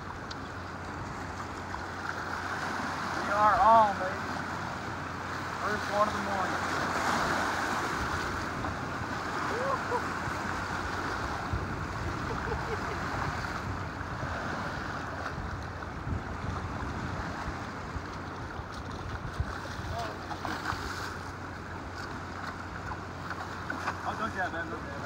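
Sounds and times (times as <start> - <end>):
waves washing against rocks: 0.0 - 25.0
wind buffeting microphone: 6.9 - 20.9.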